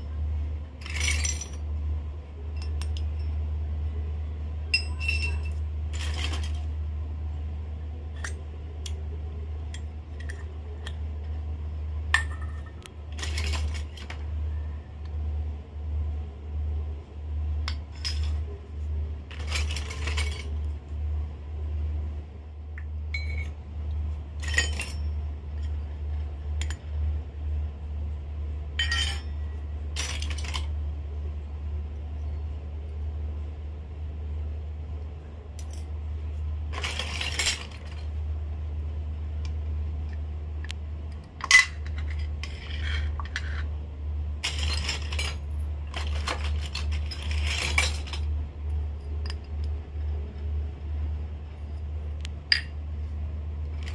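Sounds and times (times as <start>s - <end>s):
steady low hum: 0.0s - 53.9s
toy metal pots clinking on concrete: 4.7s - 6.6s, 28.8s - 29.4s.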